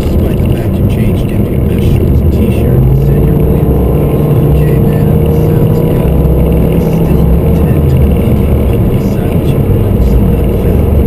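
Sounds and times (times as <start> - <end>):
car engine drone: 0.0 - 11.0
low road rumble: 0.0 - 11.0.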